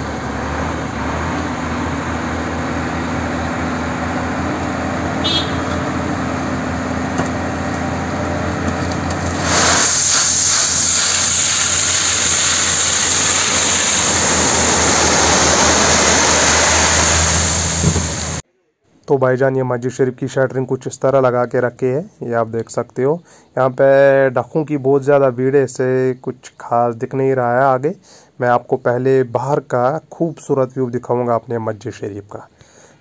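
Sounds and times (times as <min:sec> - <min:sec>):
truck engine running: 0:00.0 - 0:09.8, 0:10.8 - 0:18.4
crushed stone rushing out: 0:08.8 - 0:18.4.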